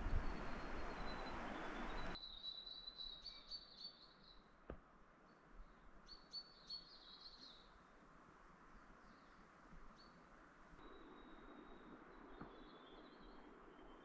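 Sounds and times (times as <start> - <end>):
bird chirping: 0.0 - 4.5.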